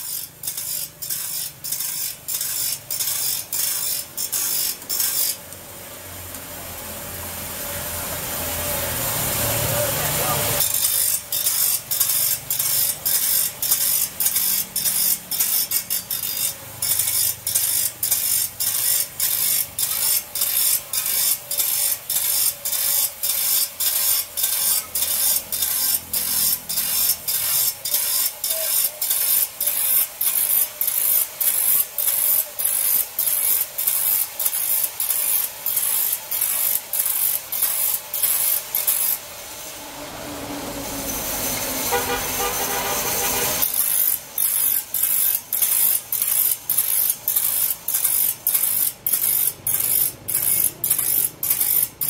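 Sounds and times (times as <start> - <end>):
grinder wheel scraping saw blade: 0.0 - 52.0.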